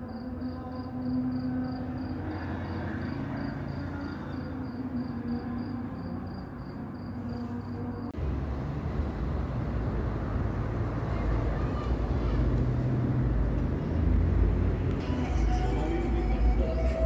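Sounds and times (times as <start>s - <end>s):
cricket chirping: 0.0s - 8.2s
low traffic rumble: 0.0s - 17.0s.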